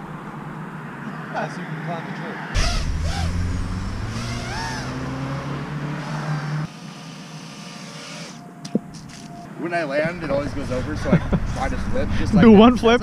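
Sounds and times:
quadcopter motors running: 0:02.6 - 0:09.3.

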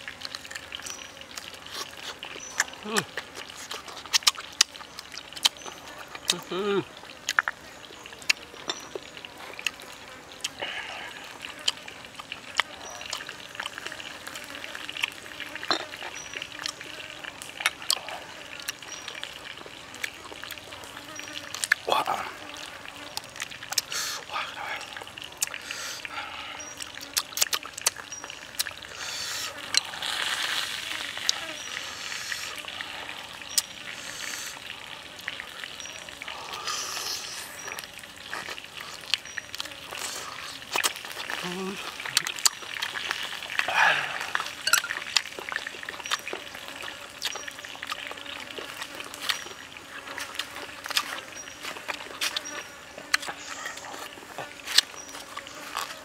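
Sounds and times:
wet sauce sounds: 0:00.0 - 0:56.0
mouth smacking while chewing: 0:00.2 - 0:20.6, 0:21.3 - 0:31.5, 0:35.7 - 0:56.0
chicken skin crackling: 0:35.3 - 0:56.0.

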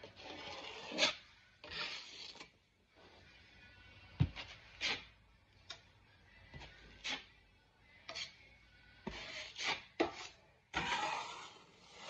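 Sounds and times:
taping knife scraping compound: 0:00.0 - 0:02.6, 0:04.4 - 0:05.2, 0:06.9 - 0:07.4, 0:09.0 - 0:12.0.

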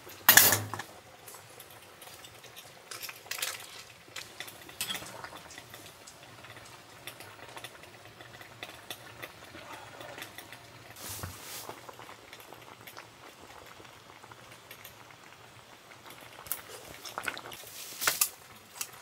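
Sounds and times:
food simmering in a pan: 0:00.0 - 0:19.0
utensils clicking on dishes: 0:01.6 - 0:05.9.

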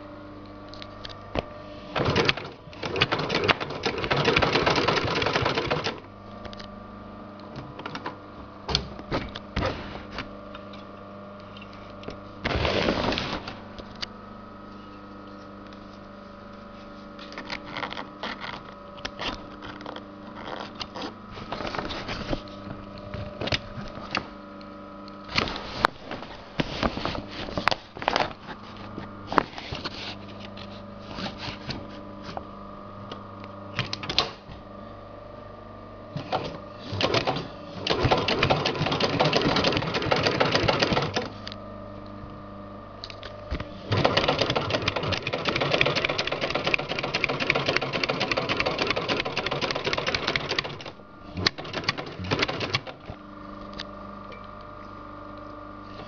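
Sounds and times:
steady hum: 0:00.0 - 0:04.1, 0:04.7 - 0:56.0
sewing machine stitching: 0:01.9 - 0:06.1, 0:12.4 - 0:13.6, 0:36.2 - 0:41.4, 0:43.8 - 0:53.1.

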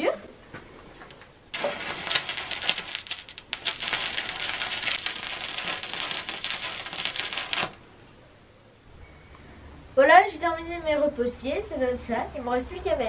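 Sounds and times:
welding arc crackling sizzle: 0:01.1 - 0:07.9.

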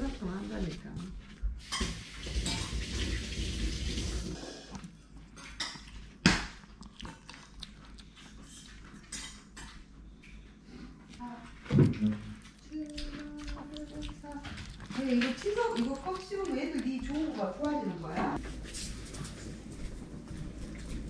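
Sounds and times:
dog claws clicking on tiled floor: 0:11.7 - 0:21.0.

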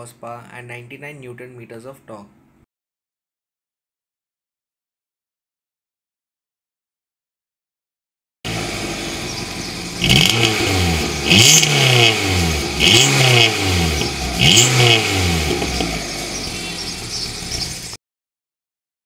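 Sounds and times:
car engine idling and revving: 0:08.5 - 0:18.0.

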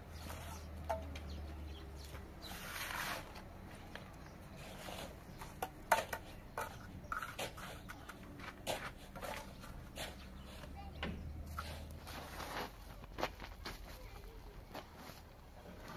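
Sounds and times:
hand tool scraping: 0:00.0 - 0:01.3, 0:02.1 - 0:13.0.

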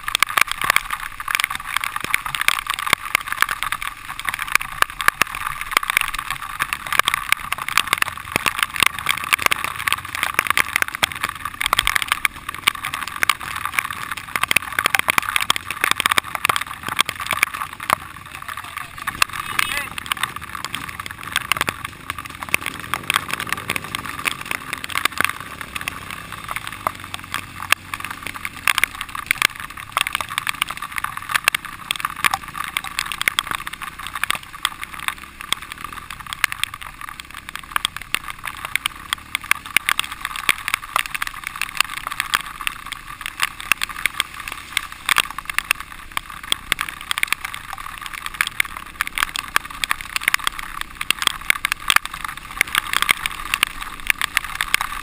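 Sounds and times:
dirt bike rattling over bumps: 0:00.0 - 0:55.0.

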